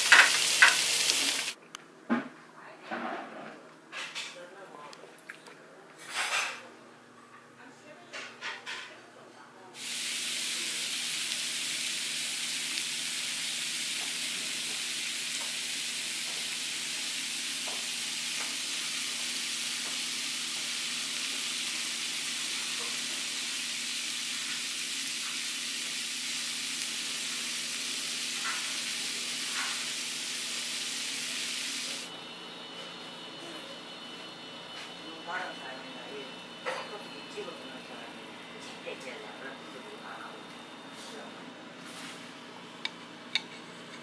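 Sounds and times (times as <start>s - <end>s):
fish sizzling on hot platter: 0.0s - 1.6s, 9.8s - 32.1s.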